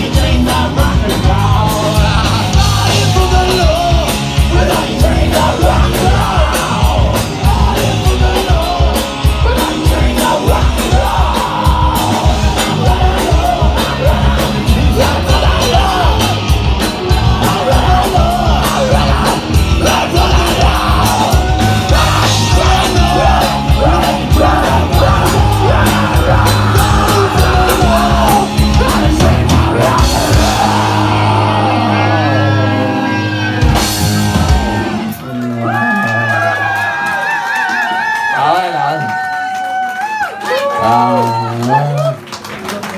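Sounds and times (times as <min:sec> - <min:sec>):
pounding drums: 0:00.0 - 0:32.7
yelled lead vocal: 0:00.0 - 0:39.0
rock band playing live: 0:00.0 - 0:42.9.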